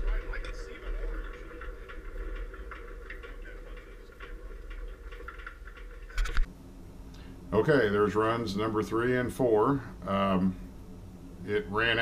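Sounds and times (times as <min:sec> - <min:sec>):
frame ticking and rattling: 0:00.0 - 0:06.5.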